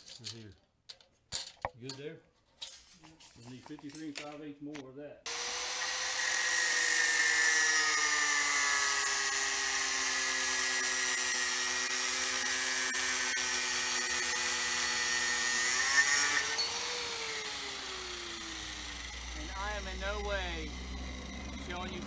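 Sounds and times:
angle grinder cutting metal: 5.3s - 22.0s.

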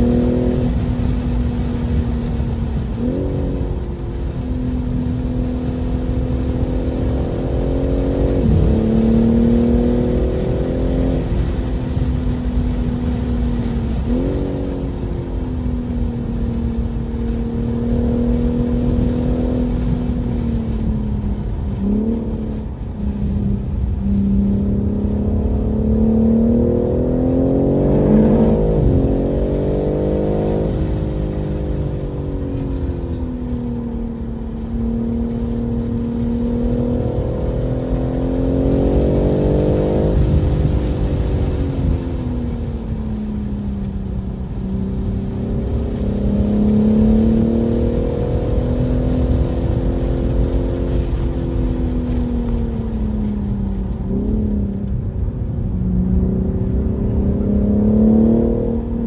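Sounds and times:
car engine revving hard: 0.0s - 15.2s, 21.5s - 33.2s, 34.6s - 42.9s, 44.5s - 52.2s, 56.1s - 59.0s
road and wind noise: 0.0s - 59.0s.

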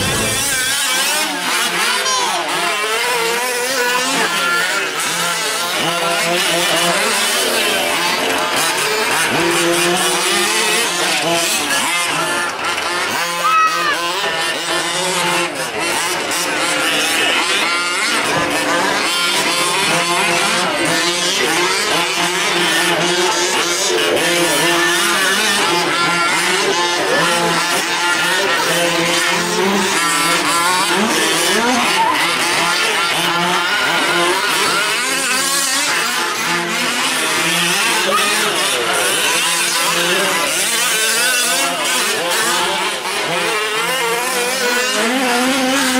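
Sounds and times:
small two-stroke engines revving: 0.0s - 45.9s.

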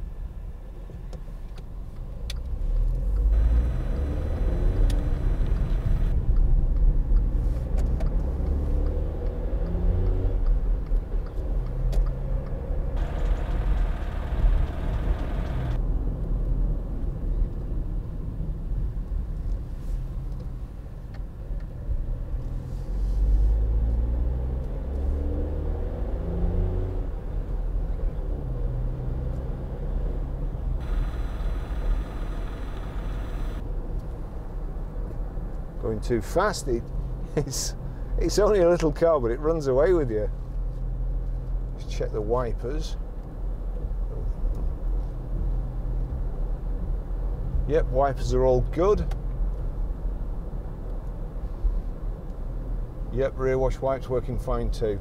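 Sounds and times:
road rumble inside cabin: 0.0s - 55.0s
car engine revving: 2.9s - 6.2s, 7.8s - 10.4s, 11.8s - 15.8s, 23.0s - 27.1s, 28.6s - 33.6s.

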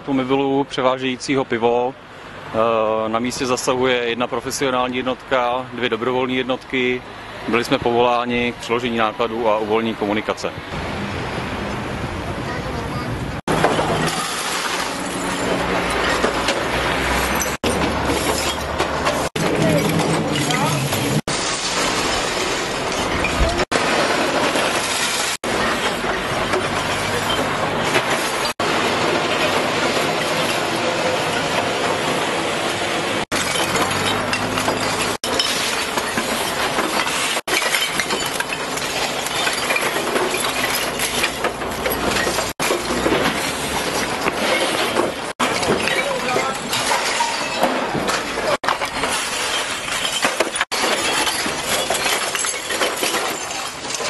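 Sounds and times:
broken glass scraped on asphalt: 13.5s - 31.6s, 33.3s - 54.0s
glass bottles clinking and rattling: 13.5s - 54.0s.

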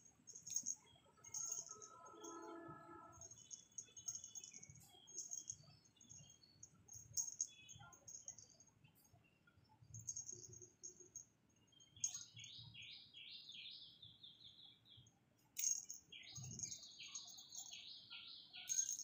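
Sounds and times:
small songbirds chirping: 0.0s - 19.0s.

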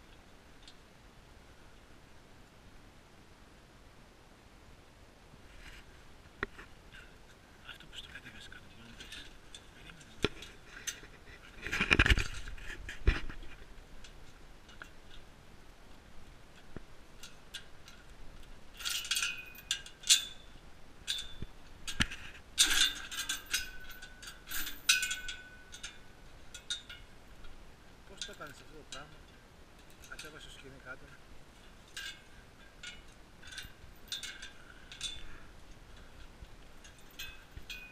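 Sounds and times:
chain rattling: 8.8s - 12.6s, 17.2s - 30.8s, 31.5s - 37.9s
metal gate clicks and knocks: 18.8s - 30.6s, 31.8s - 35.4s, 36.0s - 37.9s.

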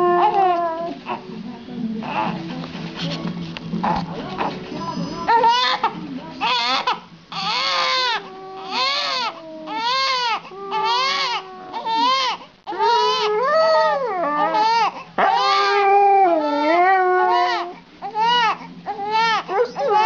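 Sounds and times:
dog howling: 0.0s - 1.0s, 5.3s - 20.0s
baby crying: 5.2s - 13.4s, 14.4s - 20.0s.

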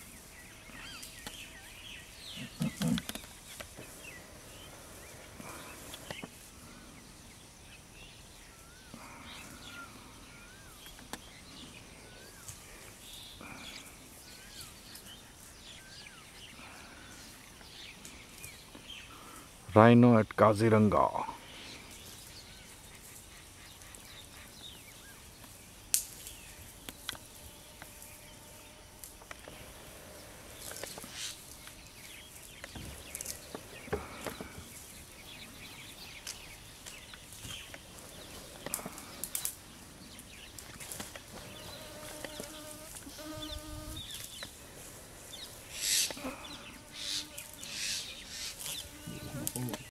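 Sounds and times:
rustling and tearing grass: 25.2s - 49.9s.

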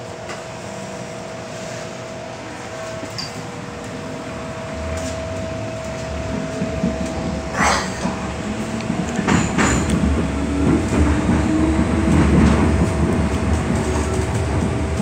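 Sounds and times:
electric train hum with two tones: 0.0s - 15.0s
train running noise: 0.0s - 15.0s.

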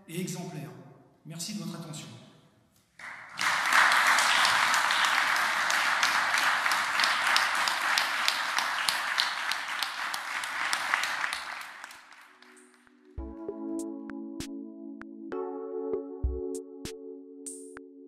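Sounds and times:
crowd applauding: 3.0s - 13.0s.

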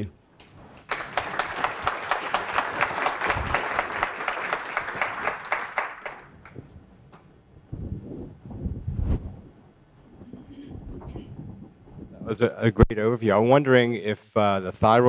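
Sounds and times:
audience applauding: 0.8s - 6.7s.

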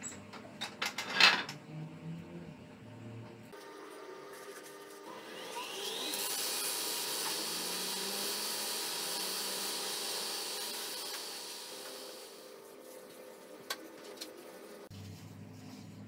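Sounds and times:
wood lathe spinning: 3.6s - 13.4s
sanding hiss: 6.2s - 12.6s.

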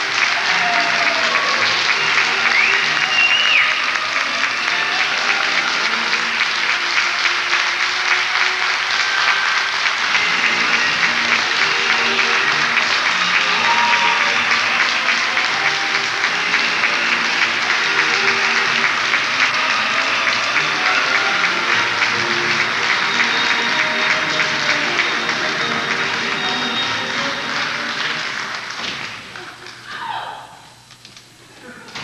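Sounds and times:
music playing: 0.0s - 29.2s
audience applause: 0.0s - 30.5s.

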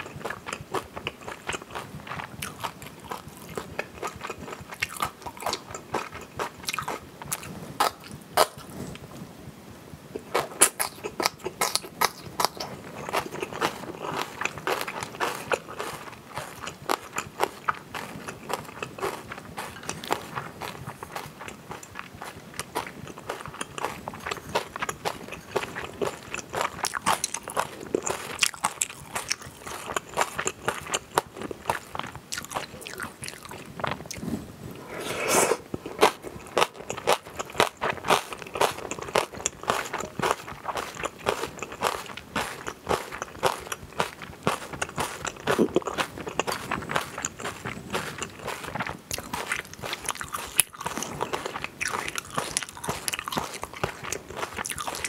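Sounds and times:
wet chewing: 0.0s - 9.0s, 10.2s - 34.3s, 35.2s - 55.0s
loud mouth sound: 34.8s - 36.1s.

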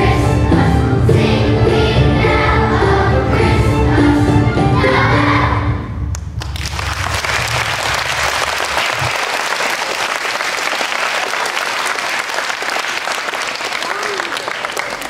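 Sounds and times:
choir singing: 0.0s - 6.0s
children applauding: 6.4s - 15.0s.

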